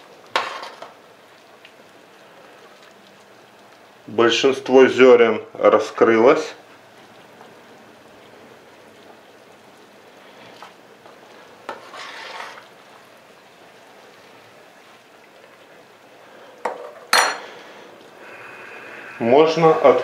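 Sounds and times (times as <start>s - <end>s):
pot boiling with bubbling hiss: 0.0s - 20.0s
spoon stirring: 11.7s - 12.7s.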